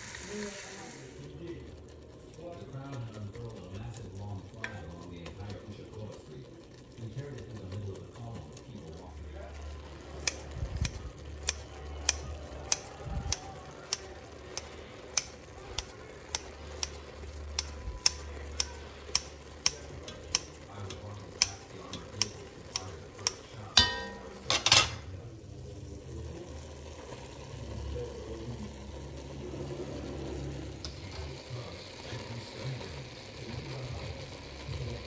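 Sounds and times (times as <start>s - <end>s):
metal clank with ring: 23.8s - 25.0s.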